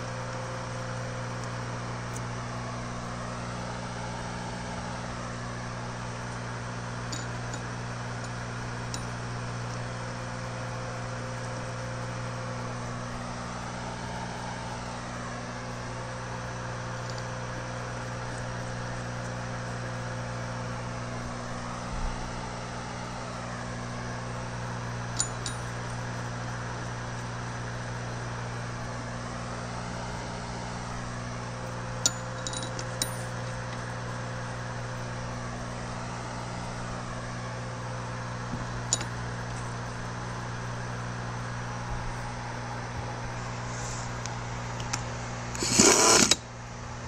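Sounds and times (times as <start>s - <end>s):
steady hum: 0.0s - 47.0s
steel bolts clinking: 25.2s - 25.8s, 32.0s - 33.5s.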